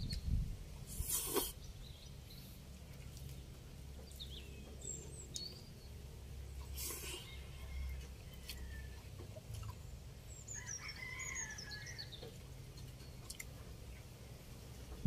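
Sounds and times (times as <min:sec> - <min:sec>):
distant rooster crowing: 0:07.1 - 0:09.1, 0:10.5 - 0:12.1.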